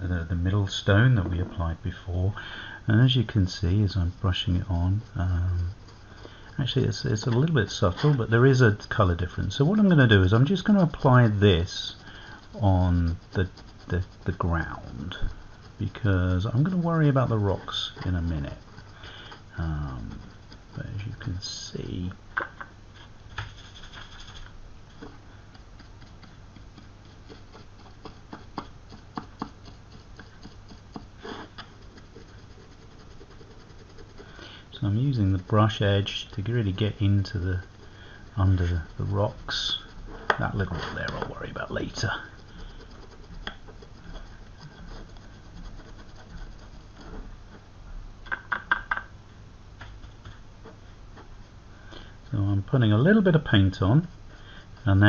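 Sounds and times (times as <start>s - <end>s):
paintbrush scratching rough surface: 0.0s - 22.2s, 22.9s - 47.8s, 49.9s - 55.0s
faint low hum: 0.0s - 55.0s
sharp ticks: 25.0s - 46.5s.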